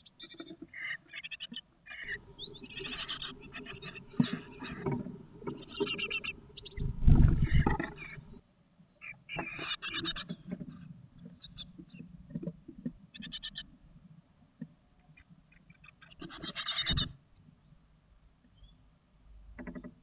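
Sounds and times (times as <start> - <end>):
nestlings chattering begging calls: 1.1 - 8.4.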